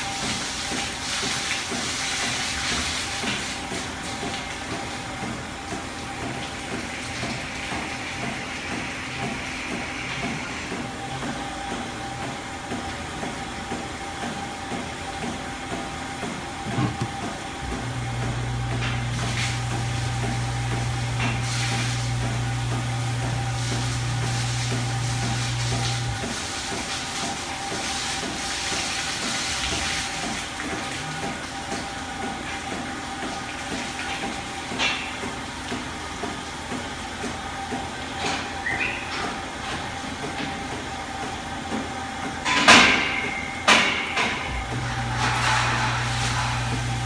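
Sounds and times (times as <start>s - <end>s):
steady machine whine: 6.0s - 26.4s, 43.2s - 47.0s
low motor hum: 15.8s - 26.4s, 44.5s - 47.0s
milking machine hiss: 18.8s - 30.4s.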